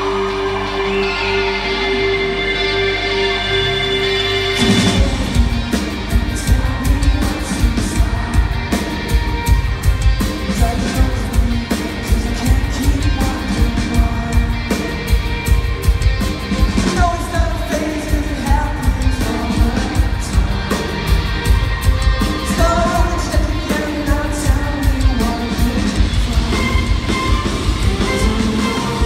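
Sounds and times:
live rock band with orchestra: 0.0 - 29.0
person singing: 0.0 - 29.0
drum beat: 4.6 - 29.0.

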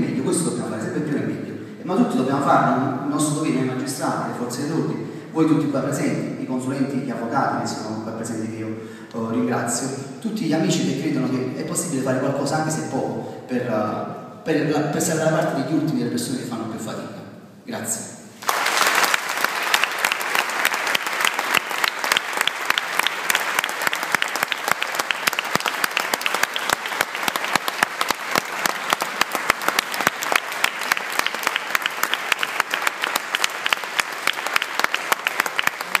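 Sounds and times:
audience applauding: 18.4 - 36.0.

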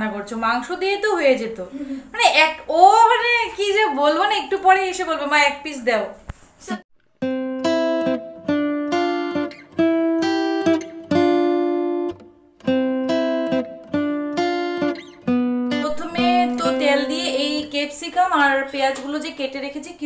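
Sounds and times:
acoustic guitar plucked notes: 7.2 - 17.8.

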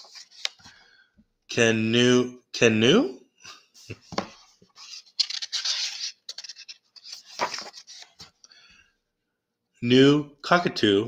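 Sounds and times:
book pages rustling: 0.0 - 0.8, 3.8 - 8.4.

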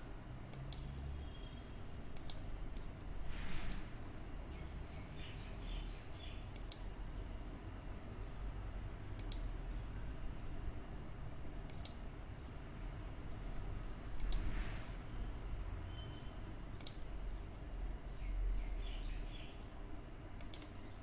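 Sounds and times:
low steady hum: 0.0 - 21.0
computer mouse button clicking: 0.5 - 0.9, 2.2 - 2.9, 6.6 - 6.9, 9.2 - 9.5, 11.7 - 12.0, 14.2 - 14.5, 16.8 - 17.1.

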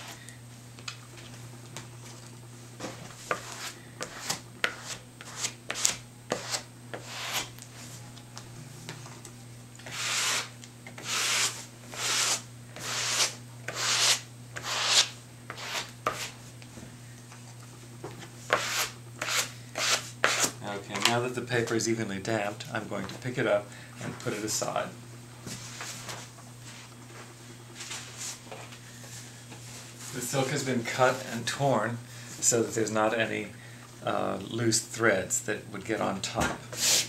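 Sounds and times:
spreader scraping paste on paper: 3.3 - 7.5, 9.9 - 16.3, 18.5 - 20.5.

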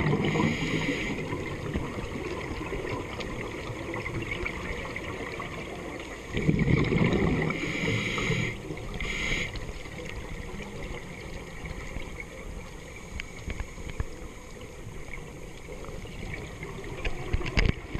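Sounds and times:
underwater noisy wash: 0.0 - 17.9
regulator breath hiss: 0.3 - 1.3, 7.5 - 9.7
faint clicks: 9.4 - 17.9.

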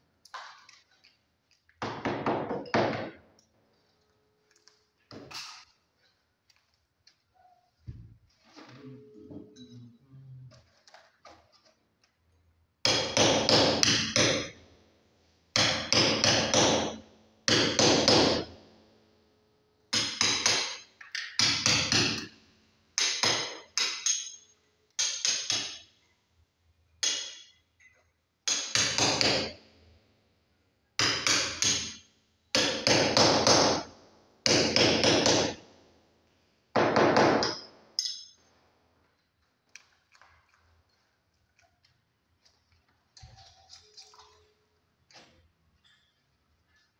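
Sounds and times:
hammer striking chisel into masonry: 12.8 - 14.6, 15.6 - 18.5, 19.9 - 22.3, 23.0 - 25.9, 28.5 - 29.6, 31.0 - 32.0.

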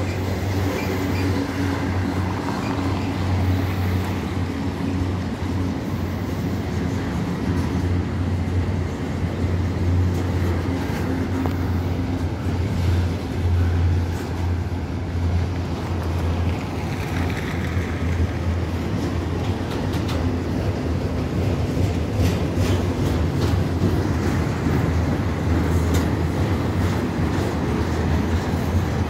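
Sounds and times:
freight train rumbling past: 0.0 - 29.0.

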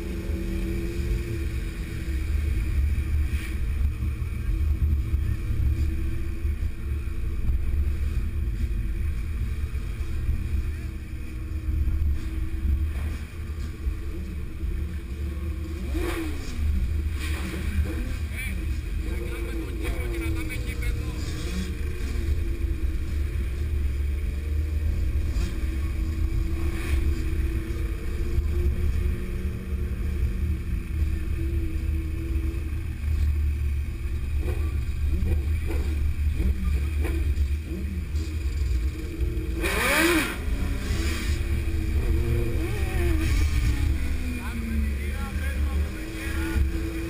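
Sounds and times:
motorcycle engines running: 0.0 - 47.0
motorcycle engine revving: 9.6 - 47.0.

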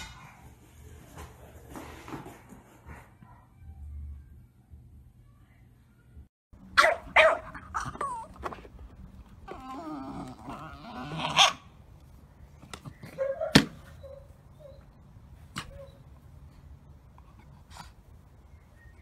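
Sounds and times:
puppy whining: 7.7 - 8.7, 9.4 - 11.6.

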